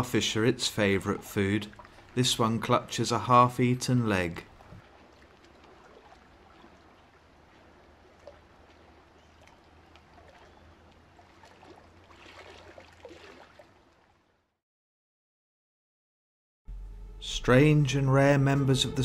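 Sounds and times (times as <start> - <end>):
low steady hum: 16.7 - 19.0.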